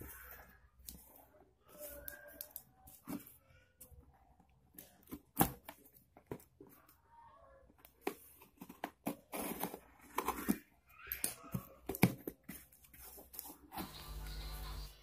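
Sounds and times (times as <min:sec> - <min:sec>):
cardboard crackling and rustling: 0:08.0 - 0:10.8.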